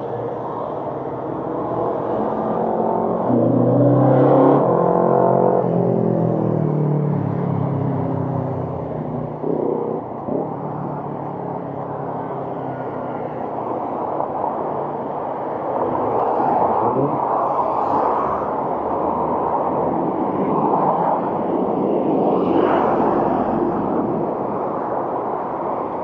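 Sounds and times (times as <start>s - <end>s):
large vehicle engine drone: 0.0s - 26.0s
road traffic passing: 0.0s - 26.0s.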